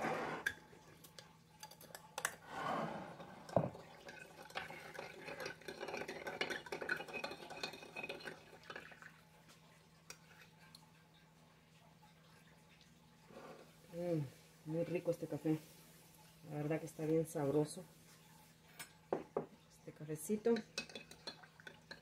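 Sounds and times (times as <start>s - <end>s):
spoon clinking in ceramic mug: 20.5s - 22.0s.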